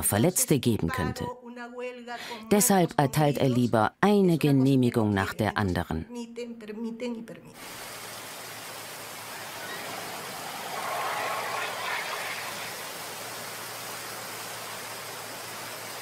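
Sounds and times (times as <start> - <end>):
running water rushing: 7.6 - 16.0.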